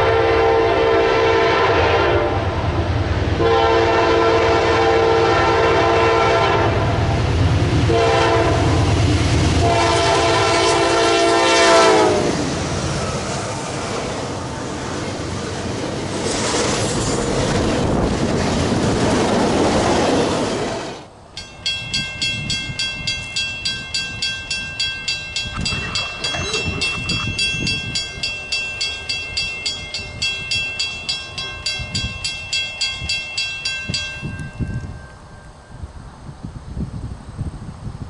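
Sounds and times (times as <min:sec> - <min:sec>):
freight train wheels on rail: 0:00.0 - 0:38.0
crossing warning bell ringing: 0:21.3 - 0:36.2.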